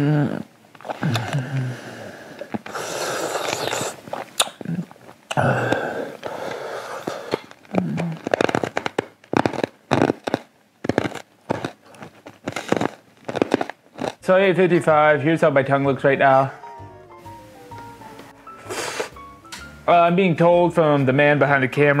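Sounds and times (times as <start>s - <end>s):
man blowing out breaths: 0.0s - 4.0s, 5.3s - 7.5s, 18.5s - 19.2s
man groaning low: 5.3s - 6.2s
quick sharp breaths: 5.6s - 7.5s, 18.6s - 19.2s.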